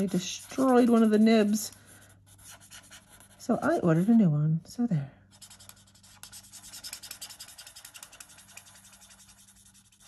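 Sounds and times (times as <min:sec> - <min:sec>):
marker nib scratching on cardstock: 0:00.0 - 0:04.1, 0:05.4 - 0:10.0.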